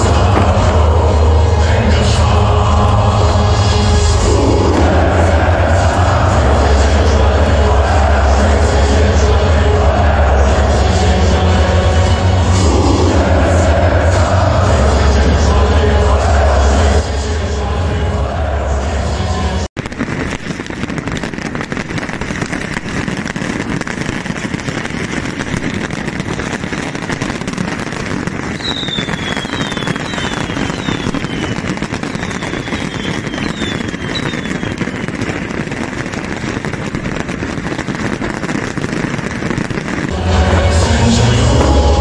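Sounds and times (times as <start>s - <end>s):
fireworks crackling: 0.0s - 17.6s, 18.4s - 42.0s
fireworks whistles: 19.8s - 42.0s.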